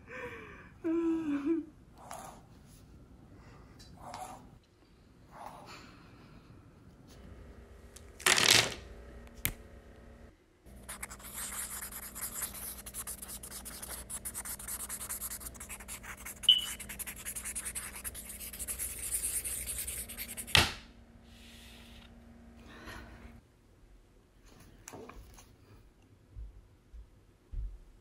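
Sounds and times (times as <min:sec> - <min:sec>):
marker scribbling on paper: 0:10.8 - 0:20.6
marker squeak: 0:11.3 - 0:18.4.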